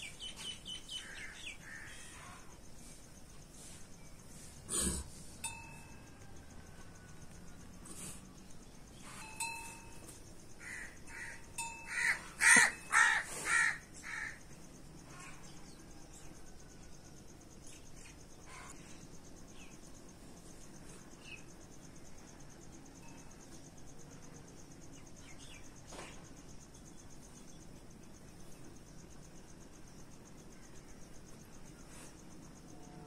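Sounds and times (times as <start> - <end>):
crickets buzzing: 0.0 - 33.0
crow cawing: 10.6 - 14.4.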